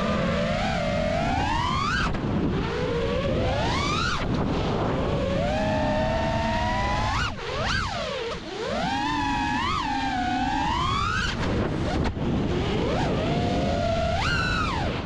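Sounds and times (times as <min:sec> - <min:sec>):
drone motors whining: 0:00.0 - 0:15.0
wind rush on microphone: 0:00.0 - 0:15.0.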